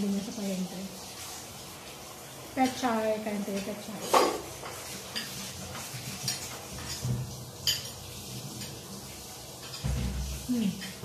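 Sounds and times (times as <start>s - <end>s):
cutlery clinking on glass bowl: 3.5s - 8.0s, 9.6s - 11.0s.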